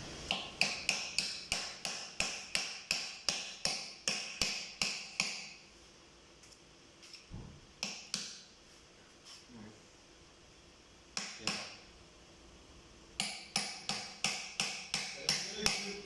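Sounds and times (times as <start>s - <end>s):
sharp metallic taps: 0.3s - 5.6s, 13.2s - 16.0s.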